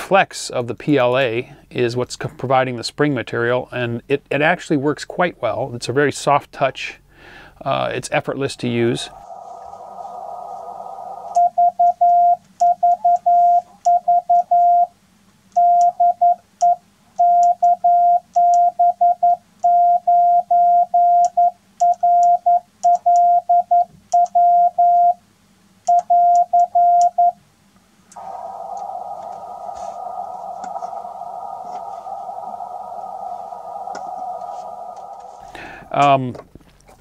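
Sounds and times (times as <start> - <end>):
morse code keyed tone: 11.4 - 14.9, 25.9 - 27.4
narrow band hiss: 28.2 - 36.1.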